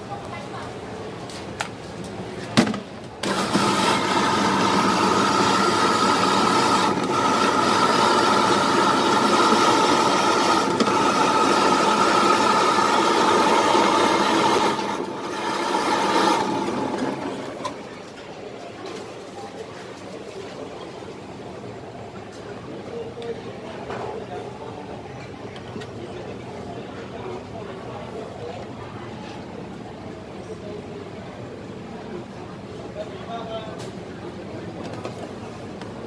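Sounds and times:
ice grinding rasp: 0:03.2 - 0:17.5
ice shaving machine motor whine: 0:03.2 - 0:17.9.

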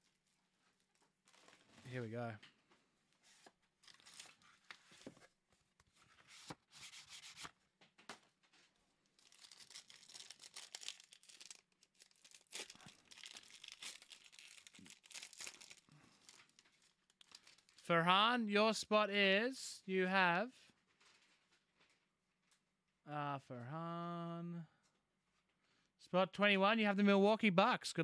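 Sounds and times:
wrapper tearing and crinkling: 0:03.8 - 0:04.6, 0:09.2 - 0:17.8.

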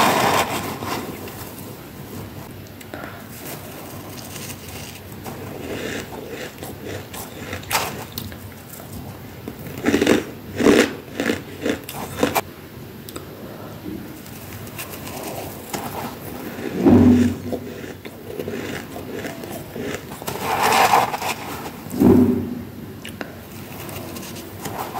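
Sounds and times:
chewing crunchy frost: 0:02.8 - 0:12.4, 0:14.2 - 0:22.0, 0:23.0 - 0:24.9
spoon scooping frost: 0:14.2 - 0:22.0, 0:23.5 - 0:24.9.

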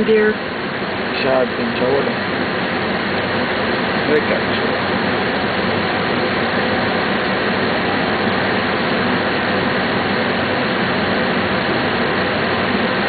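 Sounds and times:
airliner cockpit noise: 0:00.0 - 0:13.0.

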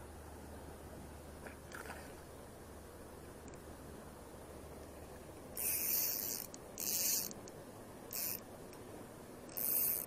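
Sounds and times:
fishing line hissing onto reel: 0:05.6 - 0:07.4, 0:08.1 - 0:08.4, 0:09.5 - 0:10.0.

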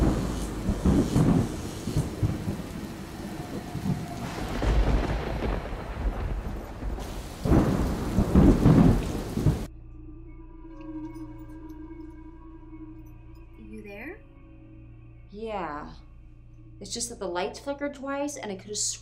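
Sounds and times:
rain: 0:00.0 - 0:09.7
thunder rumbling: 0:00.0 - 0:09.7.

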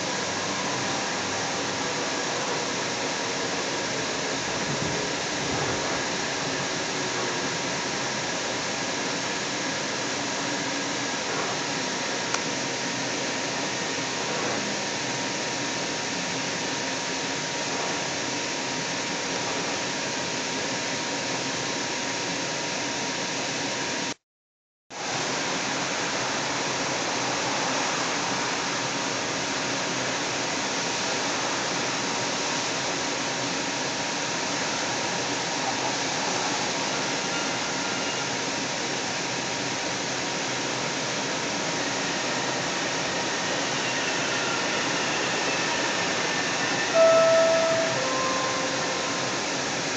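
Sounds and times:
train car hiss: 0:25.0 - 0:49.9
faint steady whine: 0:41.2 - 0:49.9.

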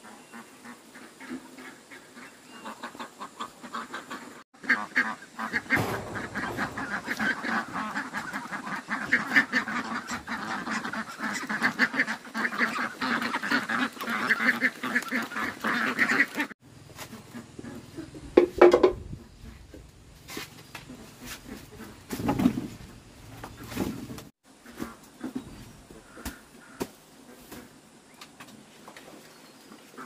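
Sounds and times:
poultry calling: 0:00.0 - 0:18.1.

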